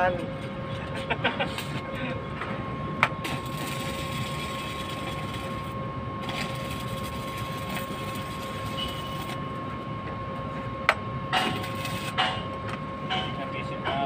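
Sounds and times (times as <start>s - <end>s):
welding arc hissing: 3.2s - 9.4s, 11.4s - 12.3s.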